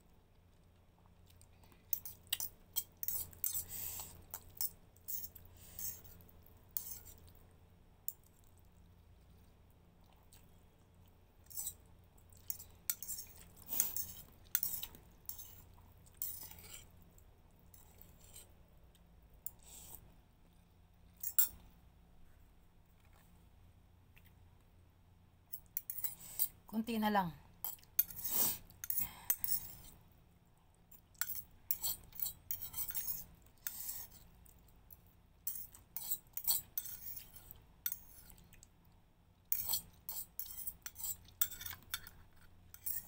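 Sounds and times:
fork scraping ceramic bowl: 2.0s - 6.1s, 6.8s - 7.2s, 12.5s - 15.6s, 16.2s - 16.9s, 17.7s - 18.5s, 25.6s - 26.6s, 27.6s - 30.0s, 31.2s - 34.2s, 35.5s - 38.3s, 39.5s - 43.0s.

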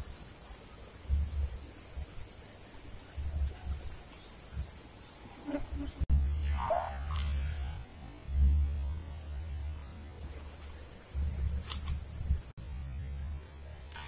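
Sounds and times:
high whine of insects: 0.0s - 14.0s
low rumbling on microphone: 1.0s - 2.3s, 3.0s - 4.8s, 5.6s - 13.9s
sharp click: 11.6s - 12.1s.

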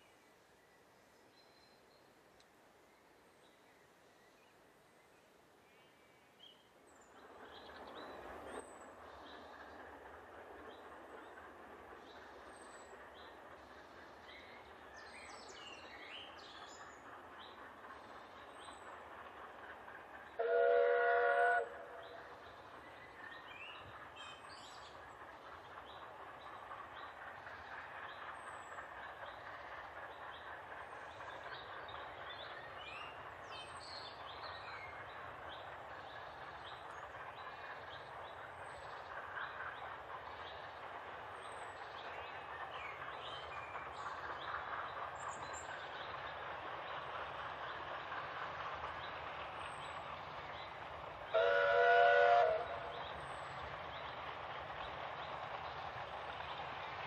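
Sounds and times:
distant train running: 0.0s - 57.0s
steam locomotive whistle: 20.4s - 22.0s, 51.3s - 52.9s.

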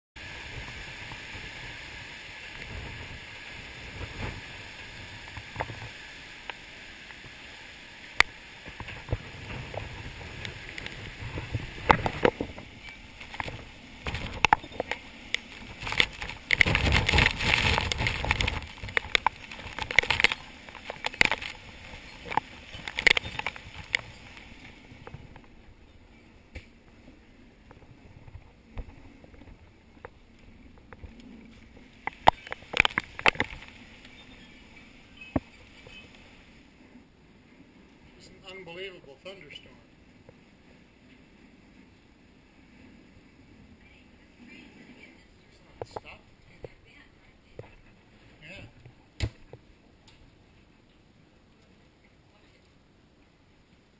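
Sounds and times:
wind gusting: 0.2s - 38.5s
rain: 0.2s - 53.9s
wind buffeting microphone: 8.6s - 25.8s.

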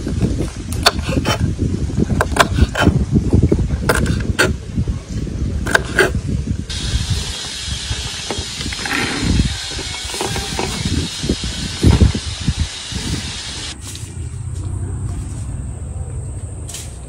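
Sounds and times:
low rumbling noise: 0.0s - 17.0s
steady hiss: 6.7s - 14.4s.

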